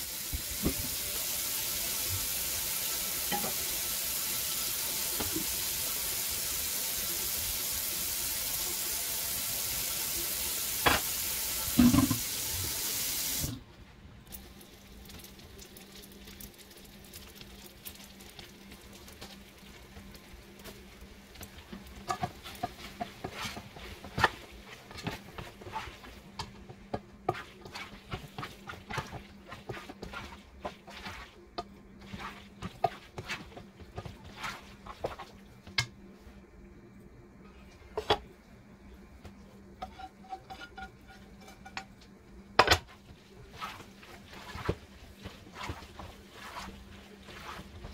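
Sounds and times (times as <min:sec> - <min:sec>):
crackles and clicks from cooking pots: 0:03.3 - 0:03.7, 0:14.2 - 0:32.0, 0:34.8 - 0:36.1, 0:37.8 - 0:38.3, 0:39.1 - 0:44.0
tap water running into metal sink: 0:10.8 - 0:13.6.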